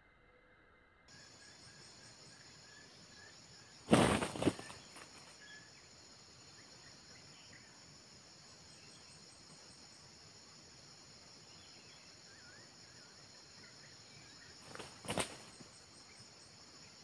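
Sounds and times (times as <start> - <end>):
insects droning: 1.1 - 17.0
wings flapping: 3.9 - 5.4, 14.6 - 15.7.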